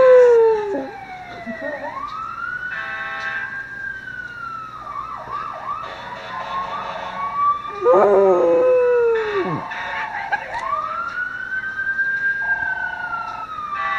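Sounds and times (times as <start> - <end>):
dog howling: 0.0 - 1.0, 7.7 - 9.6
emergency siren wailing: 0.0 - 13.9.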